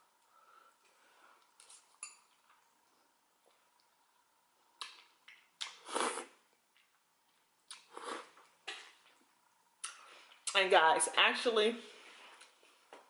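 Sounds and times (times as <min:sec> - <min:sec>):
fork clinking against glass bowl: 0:02.0 - 0:02.4
slurp of noodles: 0:05.7 - 0:06.4.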